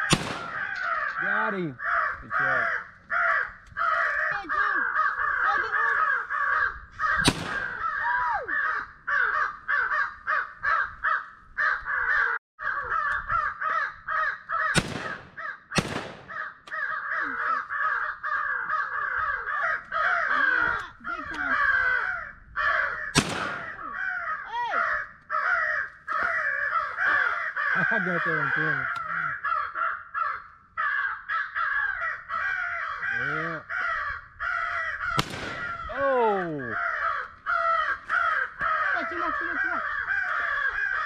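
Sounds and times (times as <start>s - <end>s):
shotgun shots: 0.0s - 0.7s, 7.2s - 7.8s, 14.7s - 16.4s, 23.1s - 23.8s, 35.2s - 36.0s
crows cawing: 0.0s - 41.0s.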